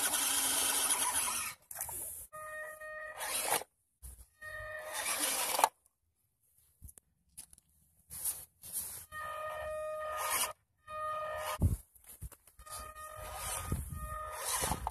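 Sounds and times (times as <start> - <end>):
small electric motor whining: 0.0 - 1.6, 3.1 - 3.6, 4.7 - 5.7, 9.5 - 11.8, 12.7 - 14.9.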